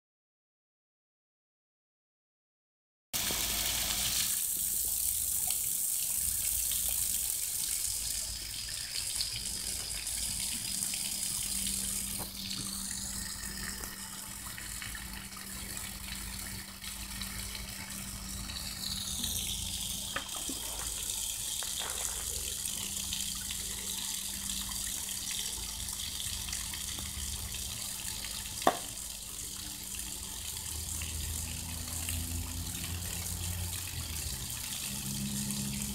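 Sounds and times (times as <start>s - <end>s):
water splashing onto concrete: 19.2s - 23.9s.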